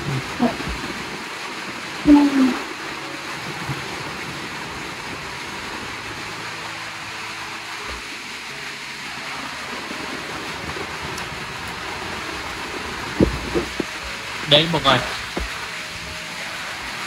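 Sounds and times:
steady rain falling: 0.0 - 17.0.

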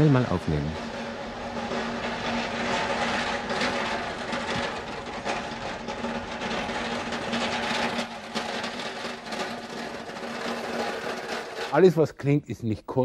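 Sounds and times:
steady hum: 0.0 - 11.6
pallet truck rattling over cobblestones: 0.0 - 12.0.

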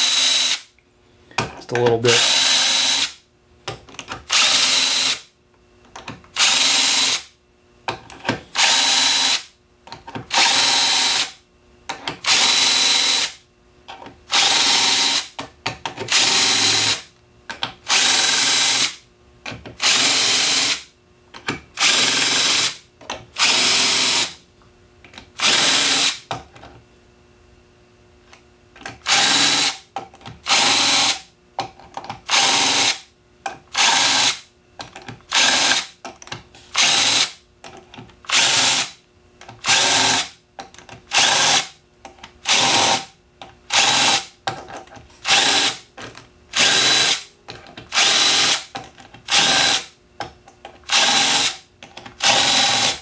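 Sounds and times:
cordless drill spinning: 0.0 - 0.6, 2.1 - 3.2, 4.3 - 5.2, 6.4 - 7.3, 8.5 - 9.5, 10.3 - 11.4, 12.2 - 13.4, 14.3 - 15.3, 16.1 - 17.1, 17.9 - 19.0, 19.8 - 20.8, 21.8 - 22.8, 23.4 - 24.4, 25.4 - 26.2, 29.0 - 29.8, 30.4 - 31.2, 32.3 - 33.0, 33.7 - 34.4, 35.3 - 35.9, 36.7 - 37.4, 38.3 - 38.9, 39.6 - 40.3, 41.1 - 41.7, 42.4 - 43.1, 43.7 - 44.3, 45.2 - 45.8, 46.5 - 47.2, 47.9 - 48.7, 49.3 - 49.9, 50.9 - 51.6, 52.2 - 53.0.

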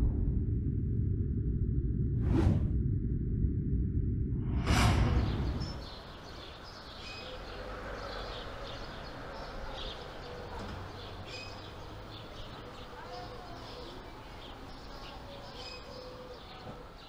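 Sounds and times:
low outdoor hum: 0.0 - 17.0
whoosh: 2.1 - 6.4
birds chirping: 5.2 - 17.0.

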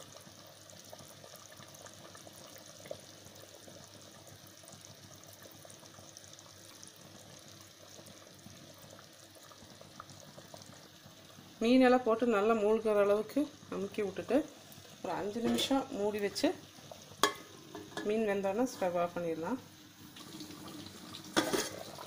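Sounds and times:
thick curry bubbling: 0.0 - 22.0.

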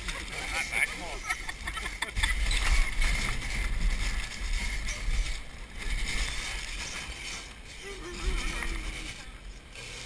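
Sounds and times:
wicker basket scraping on grass: 2.3 - 10.0.

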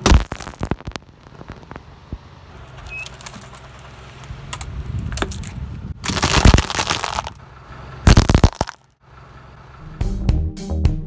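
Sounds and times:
plastic bottle cracking: 0.0 - 1.0, 6.0 - 7.4, 8.1 - 8.8
car tyre rumbling on asphalt: 0.0 - 10.2.

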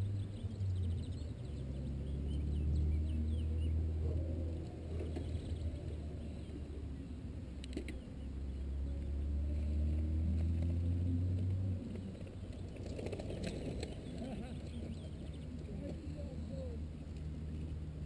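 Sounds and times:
faint birdsong: 0.0 - 18.0
mountain bikes passing on grass: 8.5 - 16.4.

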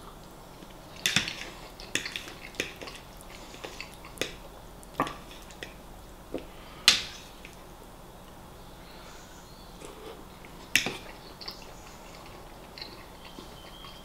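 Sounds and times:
chewing and mouth clicks: 0.2 - 5.8, 9.8 - 14.0.

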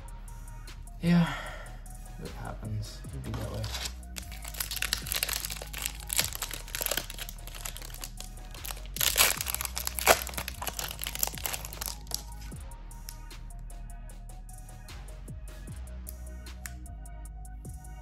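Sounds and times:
foil wrapper crinkling and tearing: 3.3 - 12.5.

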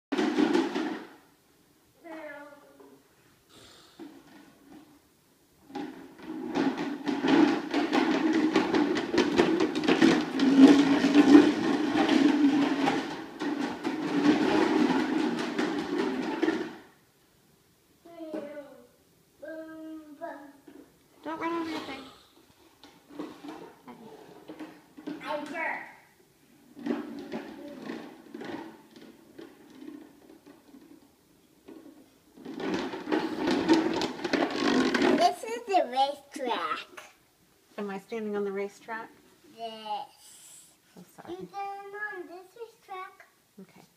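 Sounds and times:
plastic wheels rolling on tile: 0.1 - 1.4, 4.0 - 17.2, 18.1 - 43.3.

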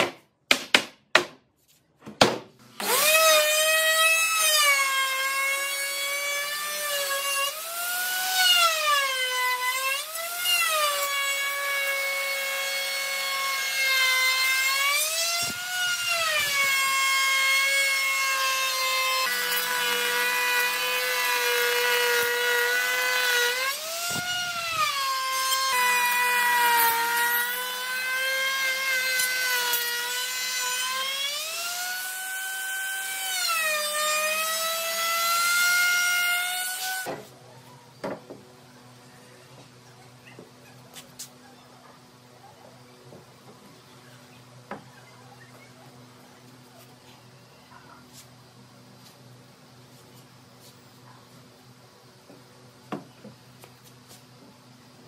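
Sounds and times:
electric router cutting wood: 2.8 - 37.1.

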